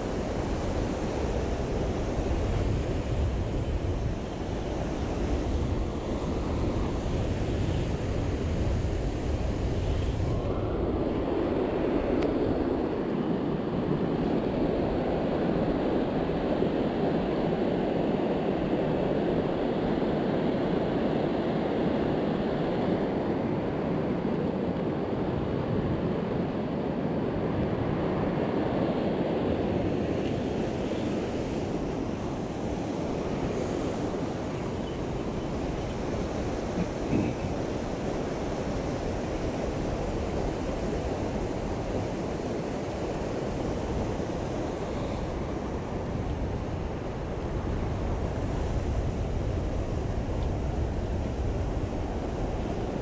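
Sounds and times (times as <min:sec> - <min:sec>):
wind buffeting microphone: 0:00.0 - 0:53.0
river water rushing: 0:29.8 - 0:49.2.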